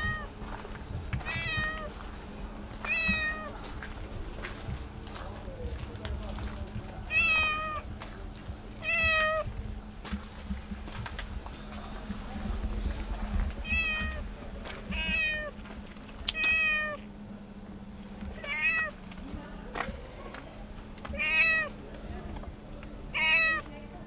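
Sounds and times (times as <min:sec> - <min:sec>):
cat meowing: 0:01.2 - 0:01.9, 0:02.9 - 0:03.5, 0:07.1 - 0:07.8, 0:08.8 - 0:09.5, 0:13.6 - 0:14.2, 0:14.9 - 0:15.5, 0:16.3 - 0:17.0, 0:18.4 - 0:19.0, 0:21.2 - 0:21.7, 0:23.1 - 0:23.7.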